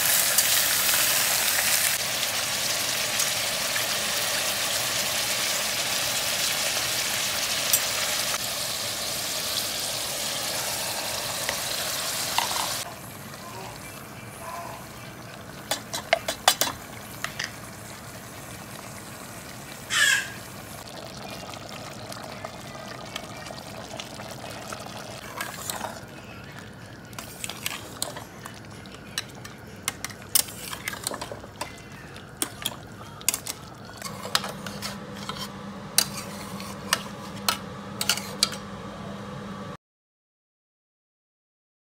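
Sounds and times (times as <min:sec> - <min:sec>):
metal spatula scraping pot: 0:30.0 - 0:31.7, 0:32.4 - 0:38.6.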